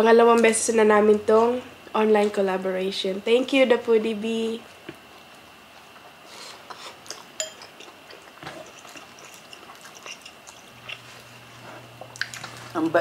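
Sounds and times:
chewing and mouth noises: 4.8 - 12.8.

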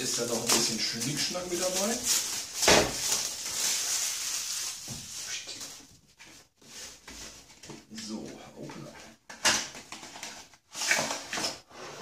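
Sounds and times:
cardboard rustling and scraping: 0.0 - 7.9.

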